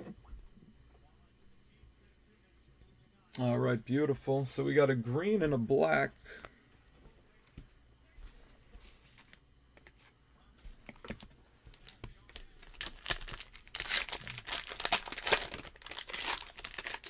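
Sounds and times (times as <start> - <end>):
foil wrapper crinkling: 11.7 - 17.0.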